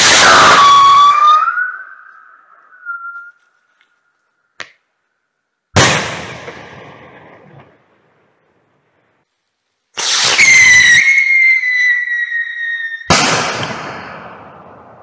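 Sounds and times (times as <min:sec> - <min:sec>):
whistle rocket whistling: 0:00.0 - 0:03.4, 0:10.0 - 0:13.1
loud rocket bang echoing: 0:05.8 - 0:07.8, 0:13.1 - 0:15.0.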